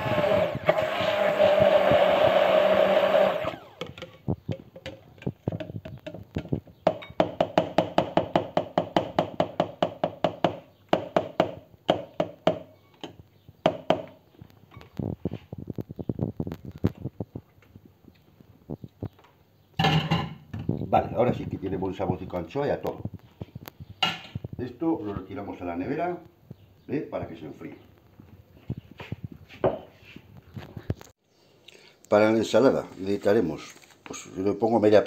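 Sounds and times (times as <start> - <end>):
stick blender running: 0.0 - 4.0.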